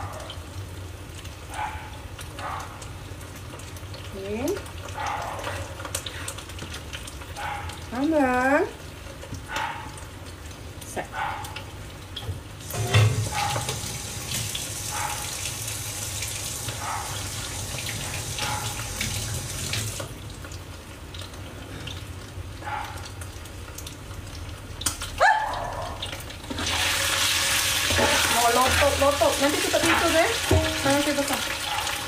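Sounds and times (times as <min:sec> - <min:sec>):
dog barking: 0:00.0 - 0:00.4, 0:01.5 - 0:02.8, 0:05.0 - 0:05.8, 0:07.4 - 0:07.8, 0:09.5 - 0:10.0, 0:11.1 - 0:11.6, 0:13.2 - 0:13.8, 0:14.9 - 0:15.4, 0:16.8 - 0:17.2, 0:18.4 - 0:18.9, 0:22.6 - 0:23.1, 0:25.2 - 0:26.1, 0:31.6 - 0:32.0
food sizzling in a wok: 0:11.6 - 0:22.6, 0:26.0 - 0:32.0
tap running into a sink: 0:12.2 - 0:20.2, 0:29.7 - 0:31.4.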